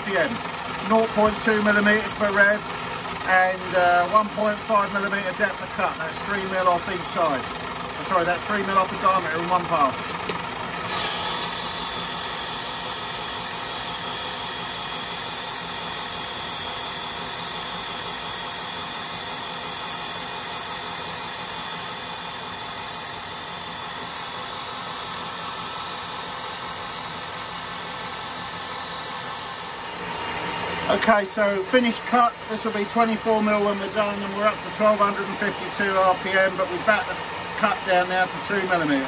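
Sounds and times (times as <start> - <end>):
lathe cutting steel: 0.4 - 39.0
high-pitched whine: 10.8 - 39.0.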